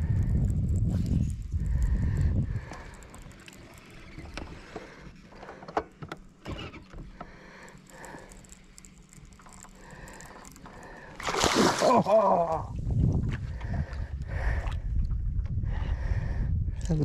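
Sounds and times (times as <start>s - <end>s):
fishing reel whirring: 0.0s - 5.3s, 6.4s - 11.7s.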